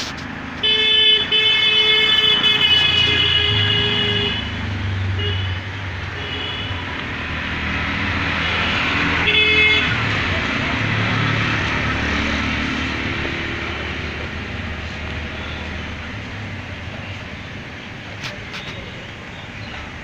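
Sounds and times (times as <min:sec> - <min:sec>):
passing engines running: 0:00.0 - 0:20.0
vehicle horn blasts: 0:00.6 - 0:04.6, 0:05.2 - 0:06.9, 0:09.2 - 0:10.0.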